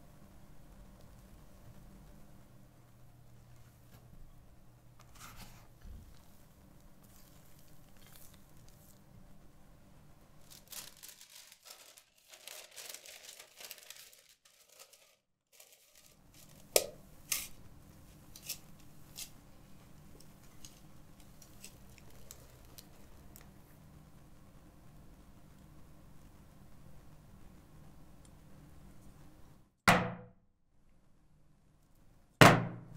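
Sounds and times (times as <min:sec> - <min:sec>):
parchment paper crinkling: 0:05.0 - 0:09.2, 0:10.3 - 0:23.6.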